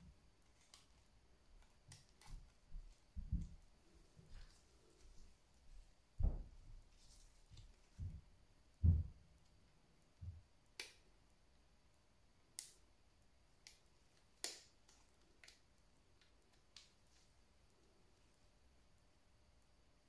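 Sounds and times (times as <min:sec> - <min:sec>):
plastic clicks and snaps: 0:10.7 - 0:11.0, 0:12.5 - 0:12.8, 0:13.6 - 0:17.0.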